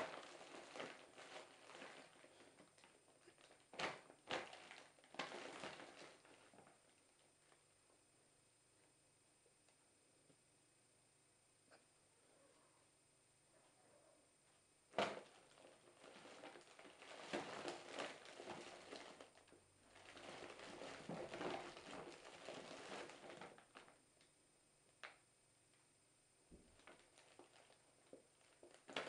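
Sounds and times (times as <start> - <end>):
cloth bag crinkling and rustling: 0.0 - 7.6, 14.9 - 24.0, 26.7 - 29.0.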